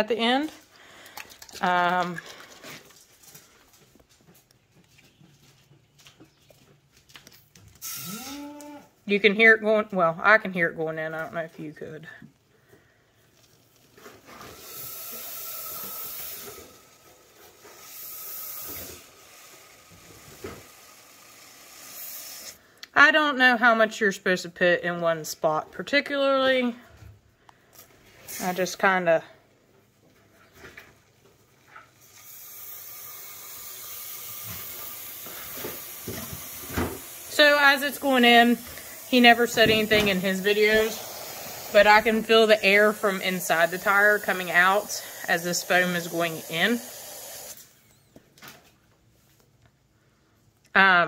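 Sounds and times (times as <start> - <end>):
spray foam can hissing: 14.6 - 16.6, 17.8 - 19.7, 20.8 - 22.6, 32.0 - 47.7.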